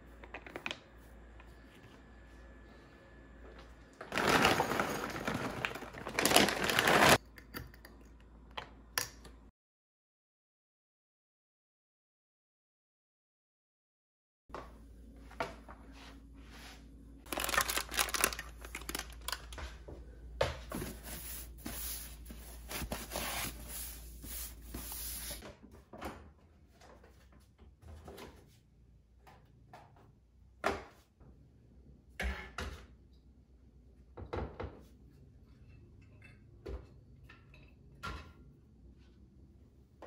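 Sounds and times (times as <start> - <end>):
plastic bags rustling and crinkling: 4.0 - 7.2, 17.2 - 19.6.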